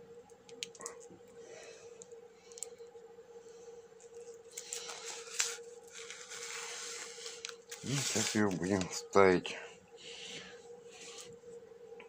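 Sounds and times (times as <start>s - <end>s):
faint hum: 0.0s - 12.0s
paper rustling: 4.5s - 9.0s.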